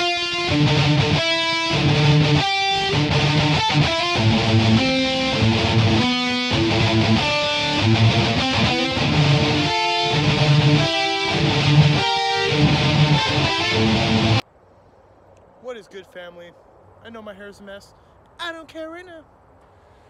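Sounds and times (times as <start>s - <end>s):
strummed guitar chords: 0.0s - 14.4s.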